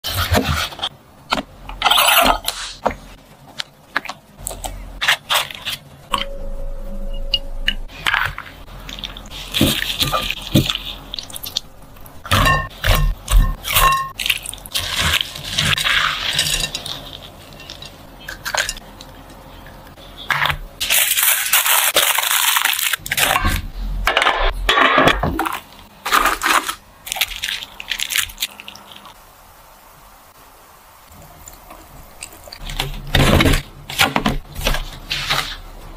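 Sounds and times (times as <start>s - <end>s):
rustling and crinkling: 7.9s - 11.6s, 31.4s - 35.9s.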